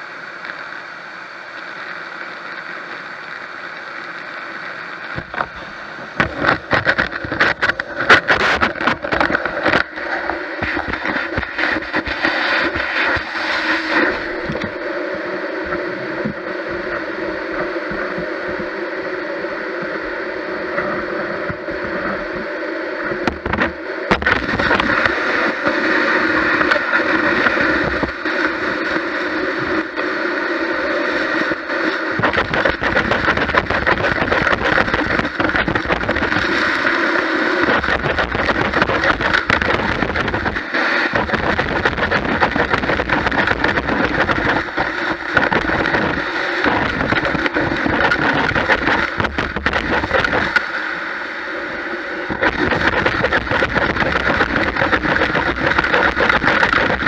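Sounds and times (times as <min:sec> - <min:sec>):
debris crackling in vacuum: 0:01.6 - 0:14.8, 0:23.1 - 0:50.8, 0:52.3 - 0:57.0
gutter vacuum running: 0:05.1 - 0:15.0, 0:23.2 - 0:50.8, 0:51.5 - 0:57.0.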